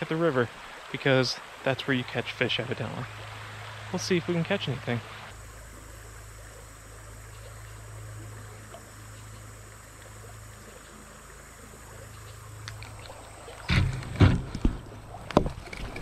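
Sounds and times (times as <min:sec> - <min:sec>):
river current flowing: 0:00.0 - 0:16.0
faint ticks: 0:05.1 - 0:13.7.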